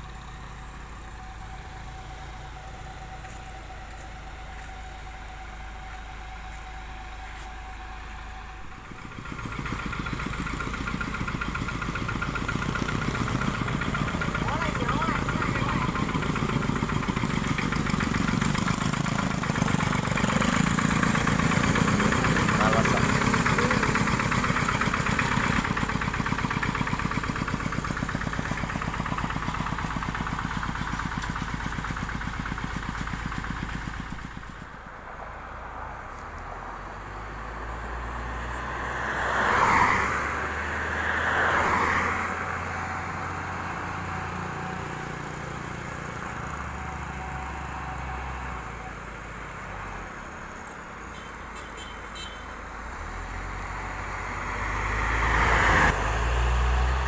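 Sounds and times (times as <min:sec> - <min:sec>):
diesel tractor engine chugging: 0:00.0 - 0:57.0
truck diesel engine running: 0:00.0 - 0:57.0
vehicle passing: 0:08.4 - 0:30.4, 0:34.3 - 0:48.7, 0:52.9 - 0:57.0
motorcycle passing: 0:08.4 - 0:49.2, 0:49.8 - 0:57.0.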